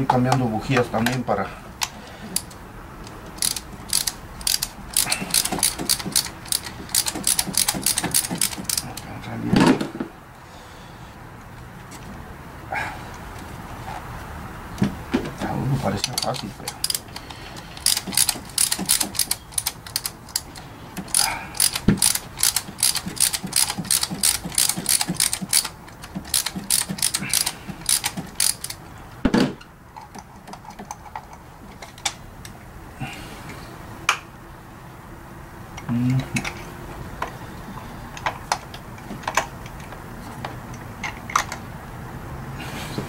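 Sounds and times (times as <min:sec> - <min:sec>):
ratchet wrench clicking: 0:03.3 - 0:09.0, 0:16.0 - 0:28.8.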